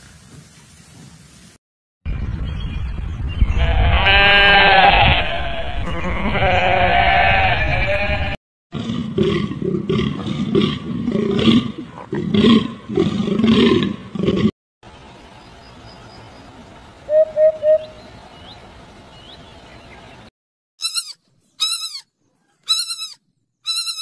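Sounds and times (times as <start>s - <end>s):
goat bleating: 3.6s - 8.4s.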